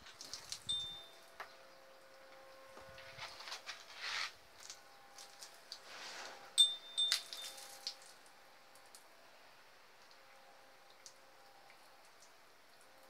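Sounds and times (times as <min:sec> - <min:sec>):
garden hose water spraying: 0:00.0 - 0:13.0
sharp ringing clinks: 0:06.6 - 0:07.7.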